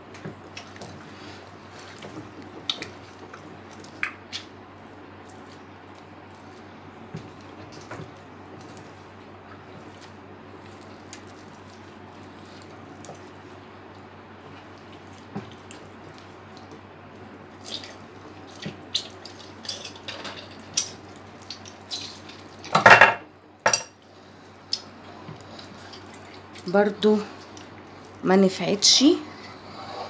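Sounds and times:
raw meat squelching and clicking: 0.2 - 1.0, 2.0 - 22.7.

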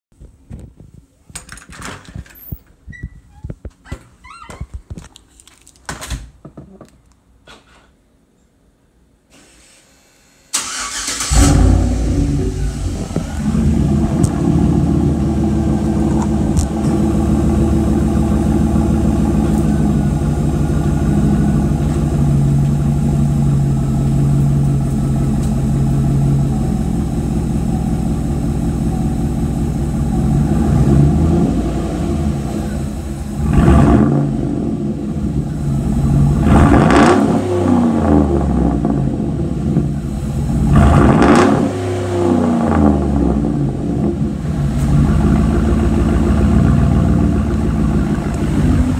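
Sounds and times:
truck engine idling and revving: 10.6 - 48.9.

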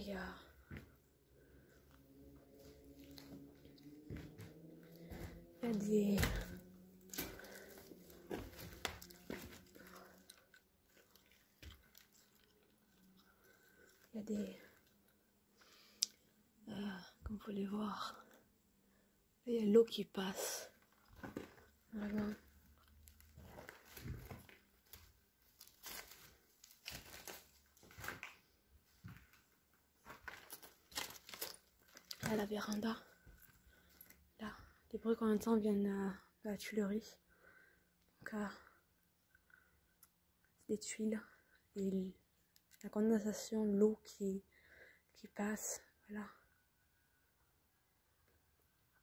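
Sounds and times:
footsteps crunching on rubble: 4.0 - 10.2, 21.0 - 33.4.

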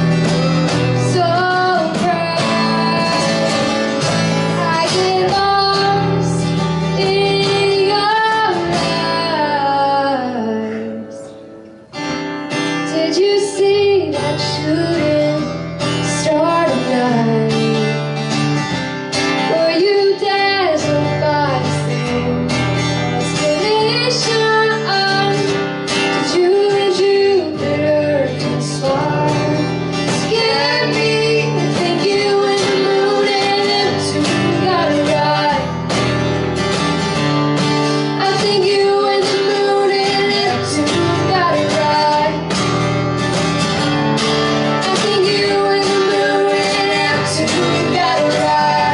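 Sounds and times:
cajon beat: 0.0 - 9.1
woman singing: 0.0 - 11.4, 12.8 - 18.1, 19.3 - 36.0, 38.0 - 42.6, 44.7 - 48.9
strummed acoustic guitars: 0.0 - 48.9.

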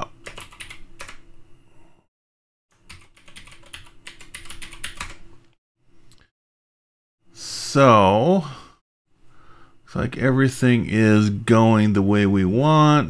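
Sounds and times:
computer keyboard typing: 0.0 - 1.2, 2.8 - 5.2.

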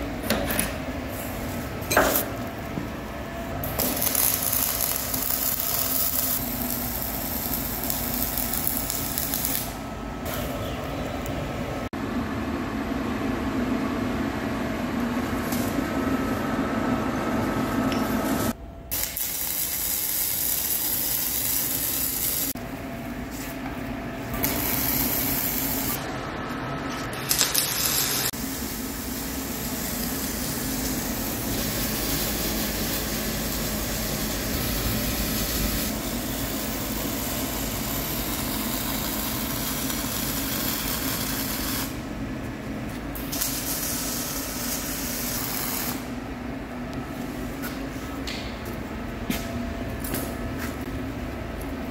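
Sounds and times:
welding arc crackling hiss: 3.6 - 10.6, 18.9 - 22.6, 24.3 - 26.0, 27.3 - 42.0, 43.2 - 46.2.

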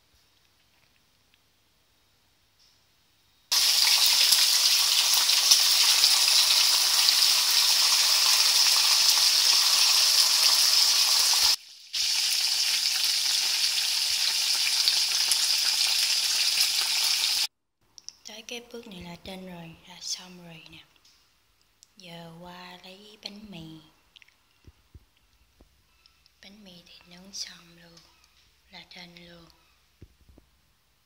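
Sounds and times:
food sizzling in hot oil: 3.5 - 17.5.

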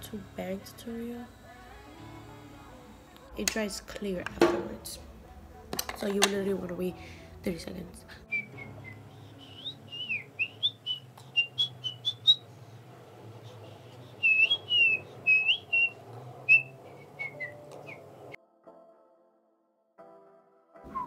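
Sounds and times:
woman whistling: 8.3 - 12.4, 14.2 - 18.0.

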